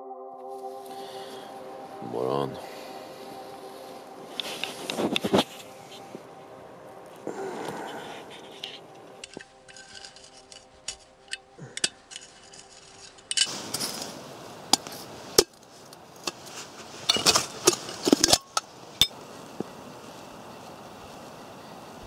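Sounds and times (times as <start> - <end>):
scraping rustle: 4.3 - 6.2, 7.1 - 11.3, 11.9 - 18.7
metal kettle clinking: 17.1 - 19.2.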